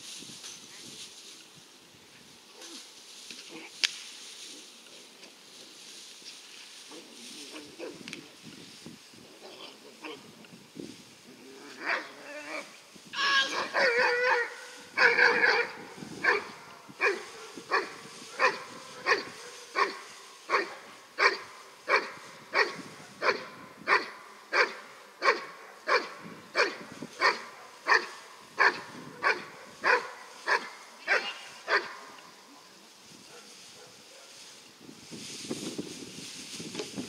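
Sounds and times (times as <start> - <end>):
large dog barking: 13.6 - 32.1.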